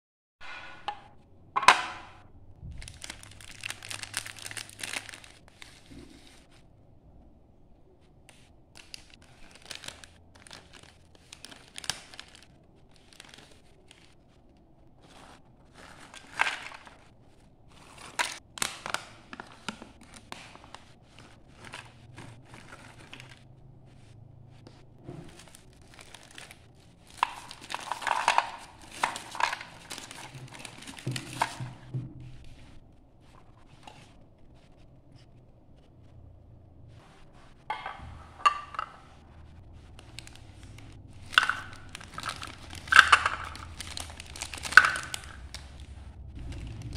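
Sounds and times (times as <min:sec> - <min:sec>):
plastic wrappers crinkling: 0:02.6 - 0:06.6, 0:08.2 - 0:34.9, 0:37.0 - 0:46.9
snacks pouring into plastic tray: 0:02.8 - 0:05.9, 0:08.8 - 0:14.1, 0:15.1 - 0:17.0, 0:25.3 - 0:31.7, 0:40.0 - 0:46.9.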